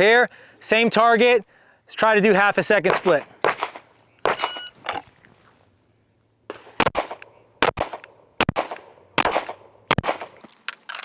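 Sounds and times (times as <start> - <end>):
pistol shots with echo: 2.8 - 4.6, 6.5 - 10.4.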